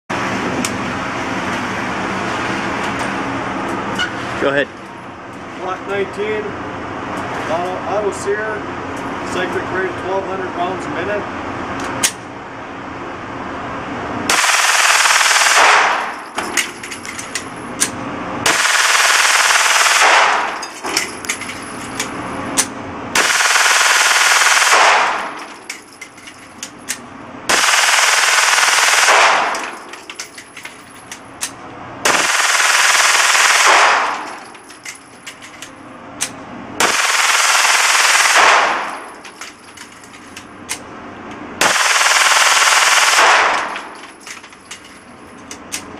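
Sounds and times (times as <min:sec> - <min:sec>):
metallic clinks: 0:20.6 - 0:22.3, 0:25.3 - 0:27.1, 0:29.6 - 0:31.6, 0:34.2 - 0:35.8, 0:38.9 - 0:40.5, 0:43.7 - 0:45.9.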